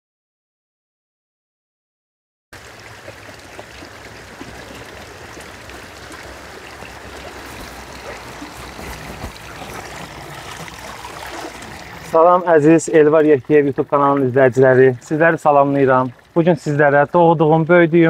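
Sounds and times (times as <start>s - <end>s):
running water rushing: 2.6s - 18.0s.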